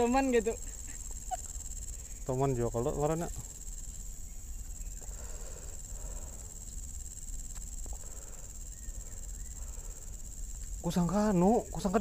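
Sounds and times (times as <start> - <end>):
insect chorus buzzing: 0.0 - 12.0
faint clicks: 7.5 - 8.0.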